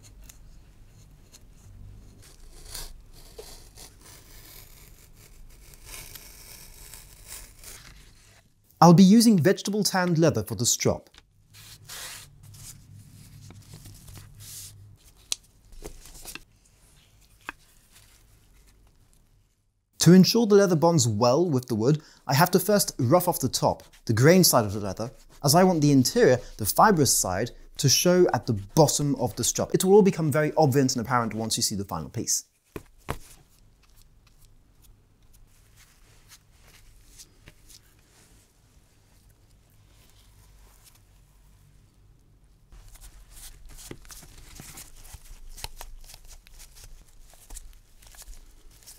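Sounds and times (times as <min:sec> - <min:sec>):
scratching on leather: 0:02.1 - 0:08.4.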